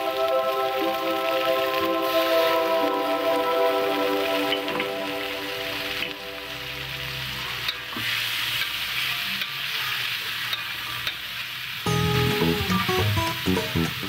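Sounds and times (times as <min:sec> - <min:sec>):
food sizzling in a wok: 0:00.0 - 0:14.0
loud music: 0:11.9 - 0:14.0.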